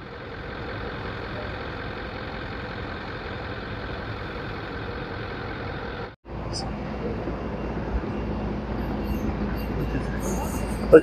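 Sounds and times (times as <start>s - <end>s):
engine running steadily: 0.0s - 11.0s.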